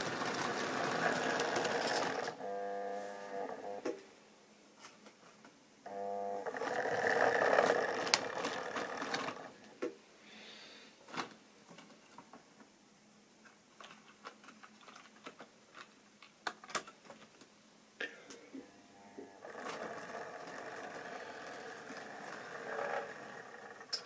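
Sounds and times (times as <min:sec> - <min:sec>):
model train motor whirring: 0:00.0 - 0:02.5, 0:06.4 - 0:09.5, 0:19.4 - 0:24.0.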